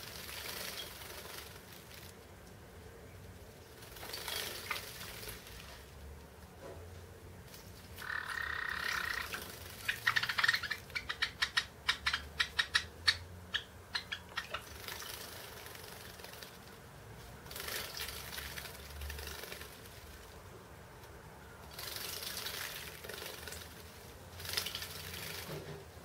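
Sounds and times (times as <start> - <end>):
bird bathing clicks and splashes: 0.0 - 2.6, 3.7 - 6.3, 7.5 - 26.0
bird chirping: 8.0 - 14.8.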